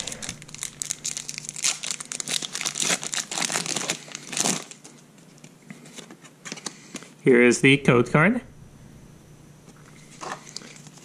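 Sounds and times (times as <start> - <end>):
foil wrapper crinkling and tearing: 0.0 - 5.5, 10.2 - 11.0.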